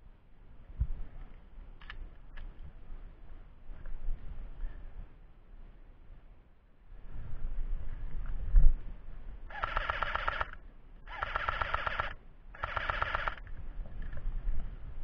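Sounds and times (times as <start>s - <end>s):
airsoft gun rattling bursts: 9.5s - 13.6s.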